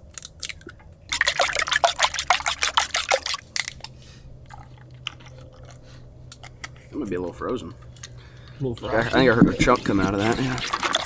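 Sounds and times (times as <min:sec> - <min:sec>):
milk pouring into bowl: 0:01.1 - 0:03.5
spoon stirring batter in bowl: 0:08.8 - 0:11.0.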